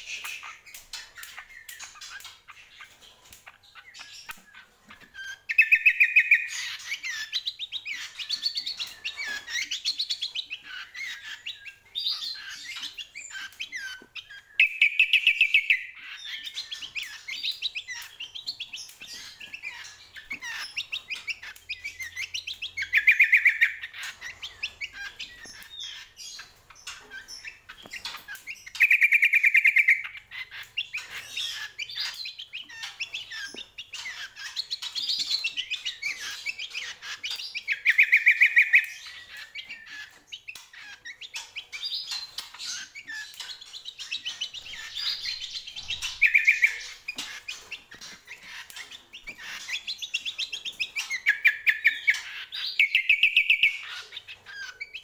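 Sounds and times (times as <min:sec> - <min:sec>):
bird chirping and chattering: 0:00.0 - 0:55.0
loud fast bird trill: 0:05.2 - 0:55.0.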